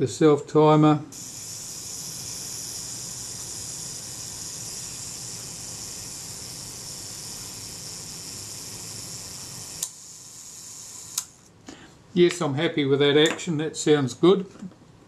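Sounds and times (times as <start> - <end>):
camera self-timer buzzing: 1.1 - 11.5.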